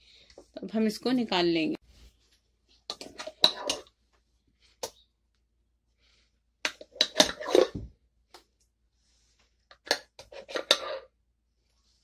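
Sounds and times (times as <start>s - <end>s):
utensil scraping a blender jar: 2.9s - 3.9s, 6.7s - 7.8s, 9.8s - 11.1s.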